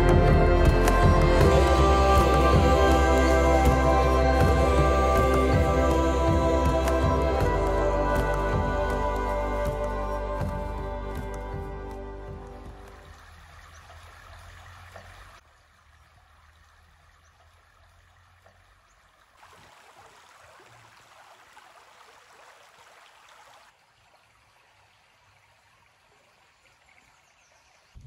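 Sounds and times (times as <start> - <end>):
music track: 0.0 - 13.3
river flowing over stones: 0.0 - 27.5.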